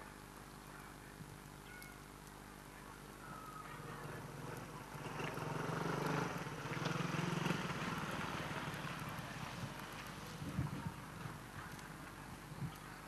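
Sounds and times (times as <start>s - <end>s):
scooter engine passing by: 3.7s - 11.8s.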